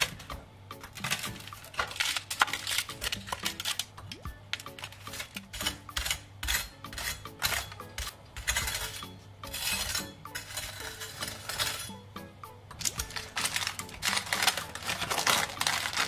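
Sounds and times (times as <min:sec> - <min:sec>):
knife crunching through crust: 0:01.0 - 0:03.8.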